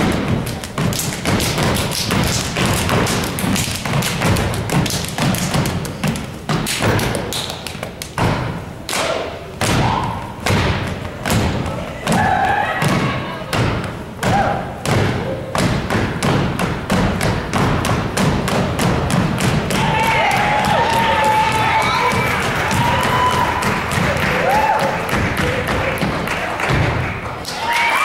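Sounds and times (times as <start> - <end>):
hand claps: 0.0 - 9.9, 17.1 - 28.0
rhythmic foot stomps: 0.0 - 27.6.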